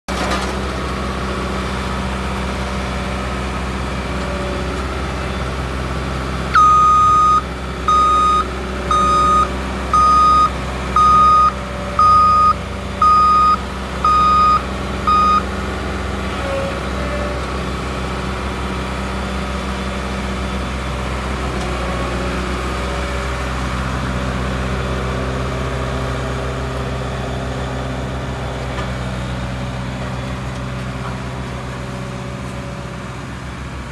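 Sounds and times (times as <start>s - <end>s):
diesel engine running: 0.1s - 33.9s
backup alarm beeping: 6.5s - 15.5s.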